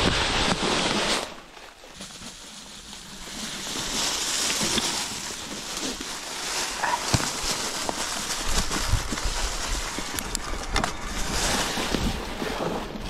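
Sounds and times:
wind buffeting microphone: 8.4s - 13.0s.

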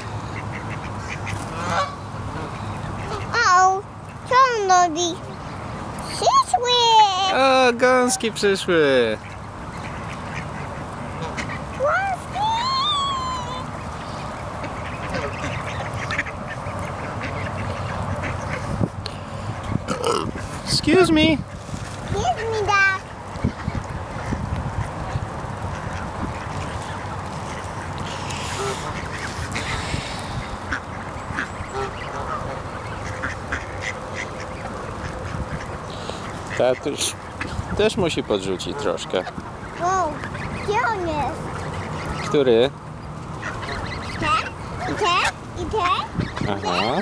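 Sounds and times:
ducks quacking: 0.0s - 4.6s, 5.2s - 47.0s
child's high voice: 3.1s - 5.2s, 6.0s - 7.4s, 11.7s - 13.8s, 22.1s - 23.1s, 39.8s - 41.4s, 44.2s - 47.0s
wind on microphone: 18.5s - 22.3s, 23.4s - 26.8s, 46.1s - 47.0s.

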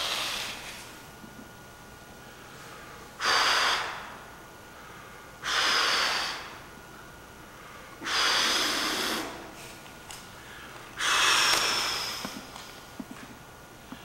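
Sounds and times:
person breathing heavily: 0.0s - 0.9s, 2.3s - 6.7s, 7.5s - 9.6s, 10.3s - 12.5s.

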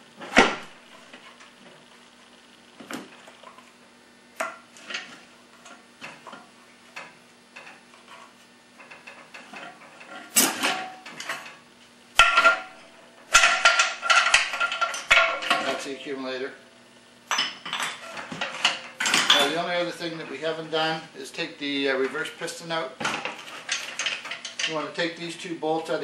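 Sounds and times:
faint steady hum: 0.0s - 26.0s
metal parts and tools clinking: 17.3s - 19.6s.

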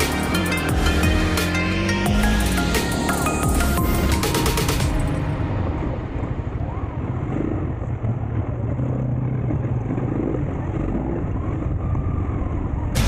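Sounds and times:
dirt bike engine running: 0.0s - 5.0s
rough road noise: 0.0s - 13.0s.

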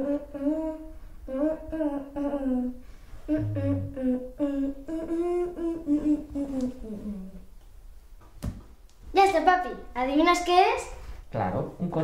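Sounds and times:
child humming: 0.0s - 7.5s.

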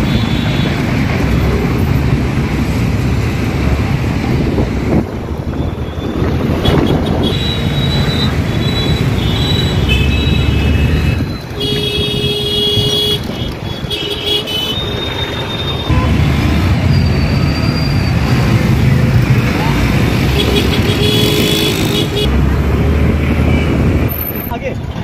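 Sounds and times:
engines rumbling: 0.0s - 25.0s
vehicle horns honking: 6.5s - 16.4s, 20.3s - 22.3s.

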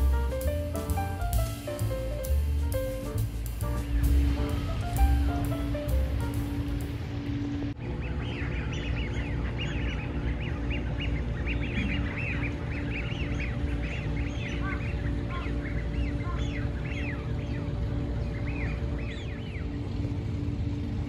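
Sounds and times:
chorus of bird calls: 7.8s - 21.0s.

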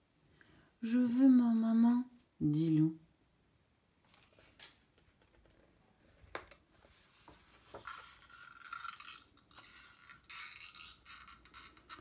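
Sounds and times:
paper page turning: 4.0s - 5.4s.

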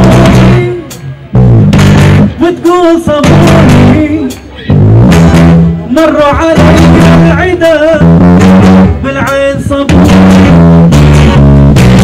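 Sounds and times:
strummed guitars: 0.0s - 12.0s
man singing wavering melody: 5.8s - 8.2s.

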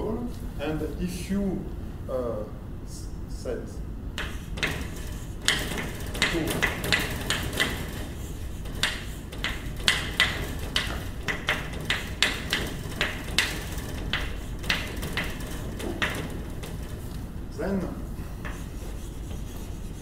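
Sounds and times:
chalk tapping and scratching: 4.2s - 17.2s, 18.2s - 20.0s.

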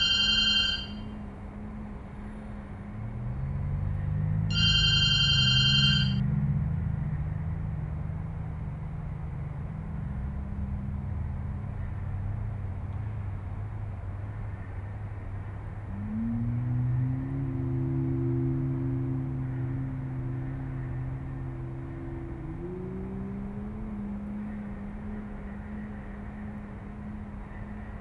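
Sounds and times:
telephone ringing: 0.0s - 1.1s, 4.5s - 6.2s
low steady drone: 0.0s - 28.0s.

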